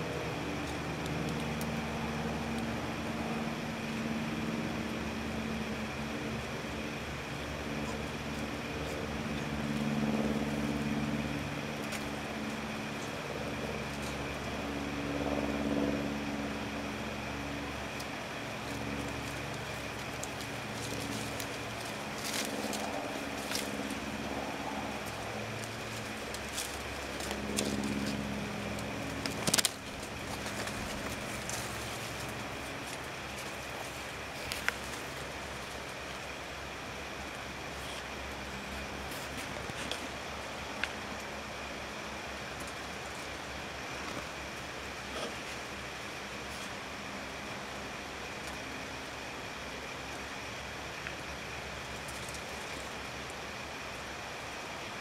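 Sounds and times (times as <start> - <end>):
distant motor engine humming: 0.0 - 55.0.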